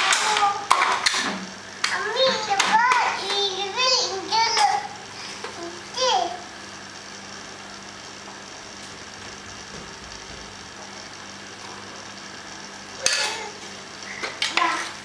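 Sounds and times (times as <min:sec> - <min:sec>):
plastic toy clicks and clatters: 0:00.0 - 0:01.2
faint steady hum: 0:00.0 - 0:15.0.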